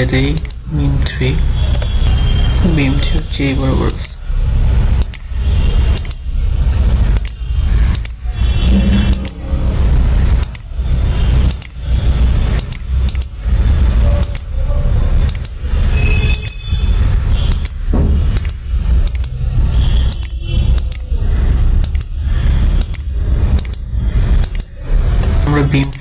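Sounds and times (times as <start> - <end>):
computer mouse clicking: 0.4 - 0.6, 5.0 - 5.2, 6.0 - 6.2, 7.2 - 8.2, 11.5 - 11.8, 12.6 - 13.3, 14.2 - 14.5, 15.2 - 15.6, 17.5 - 19.3, 20.2 - 21.0, 21.8 - 22.1, 22.8 - 23.0, 23.6 - 23.8, 24.4 - 26.0
steady low rumble: 3.1 - 16.0.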